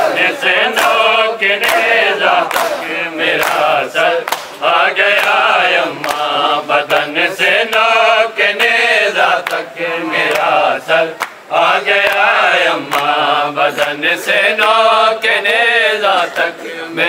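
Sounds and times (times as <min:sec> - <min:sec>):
men chanting a lament: 0:00.0 - 0:17.0
hands slapping chests: 0:01.6 - 0:04.6.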